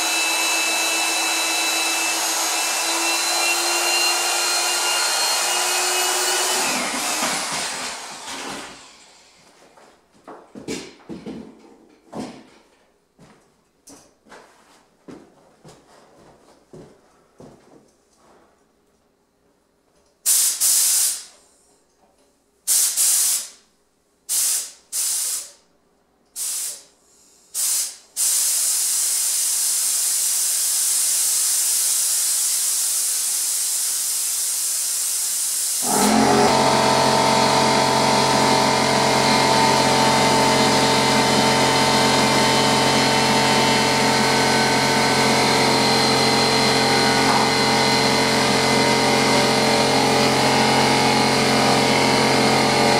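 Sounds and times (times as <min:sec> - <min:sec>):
spray gun air hissing: 0:20.2 - 0:21.4, 0:22.7 - 0:23.6, 0:24.3 - 0:25.6, 0:26.4 - 0:26.9, 0:27.5 - 0:35.9
air compressor motor humming: 0:35.5 - 0:52.9.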